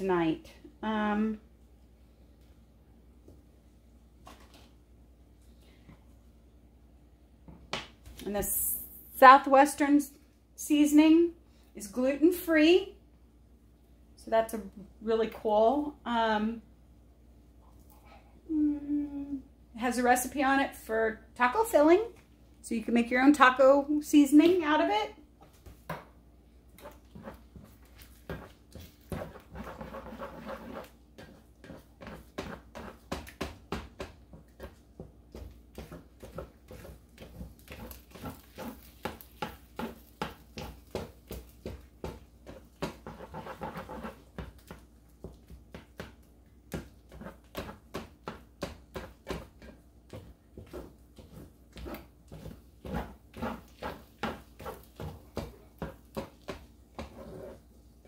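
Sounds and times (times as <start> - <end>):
spoon scraping rice in skillet: 26.8 - 33.1, 35.8 - 44.8, 50.6 - 57.7.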